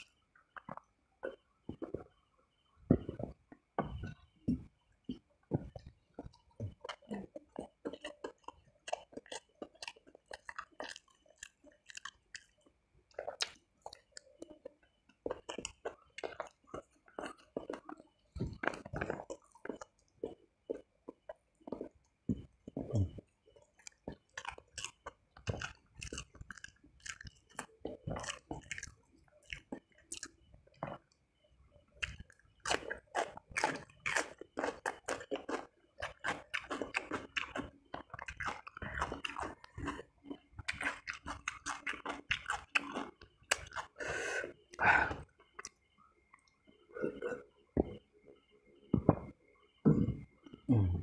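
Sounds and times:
wet chewing and mouth smacks: 0:00.0 - 0:02.1, 0:02.9 - 0:31.2, 0:32.0 - 0:44.0
crisp cucumber bites: 0:03.8 - 0:31.2, 0:32.0 - 0:44.0.

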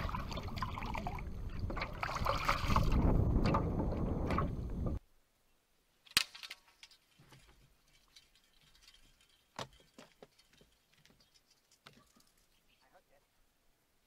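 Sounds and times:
wind buffeting microphone: 0:00.0 - 0:05.0.

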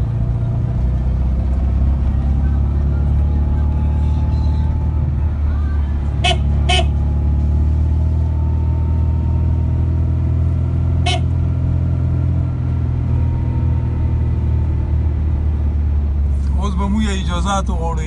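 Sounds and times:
car engine and road noise: 0:00.0 - 0:18.0
car horn toots: 0:06.2 - 0:07.0, 0:11.0 - 0:11.5.

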